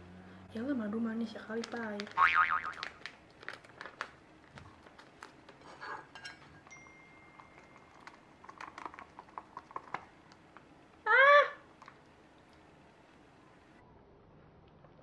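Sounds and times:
plastic bag crinkling: 0:01.5 - 0:05.7, 0:07.3 - 0:10.6.

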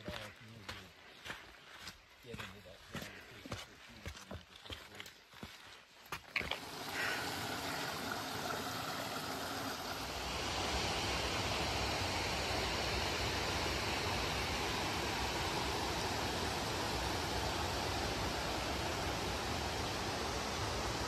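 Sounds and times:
footsteps on rocky trail: 0:00.0 - 0:07.1
creek rushing: 0:06.4 - 0:21.0.

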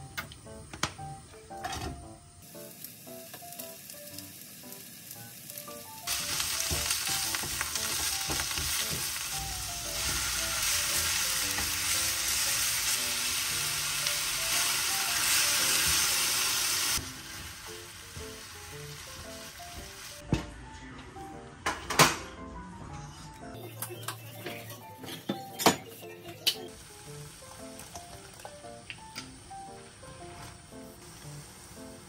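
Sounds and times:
soft background music: 0:00.0 - 0:32.0
food sizzling in hot oil: 0:02.4 - 0:20.2, 0:26.7 - 0:32.0.

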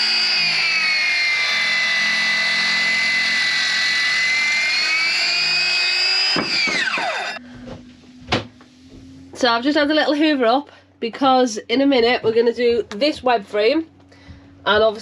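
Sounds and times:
blade cutting into timber: 0:00.0 - 0:07.4
biscuit jointer motor whining: 0:00.0 - 0:08.3.

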